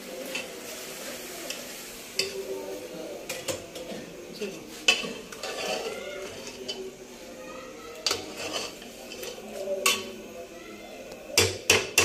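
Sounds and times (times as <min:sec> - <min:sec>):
metal spoon scraping in pot: 0:04.8 - 0:07.0, 0:08.0 - 0:10.1.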